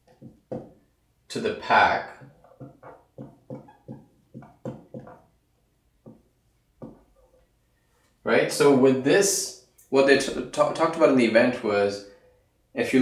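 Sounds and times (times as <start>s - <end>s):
marker writing on whiteboard: 0.0s - 0.8s, 1.6s - 5.4s, 6.0s - 7.4s.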